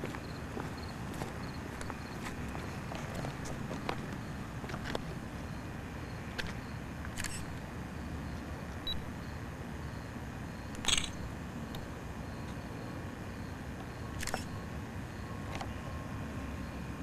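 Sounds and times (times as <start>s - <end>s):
camera handling rumble: 10.8s - 11.2s, 14.2s - 14.5s.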